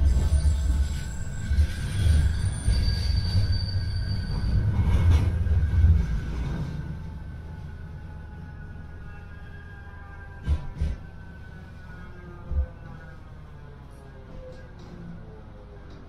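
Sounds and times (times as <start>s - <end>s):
wheel squeal on rails: 0.0s - 6.8s
tram low rumble: 0.0s - 16.0s.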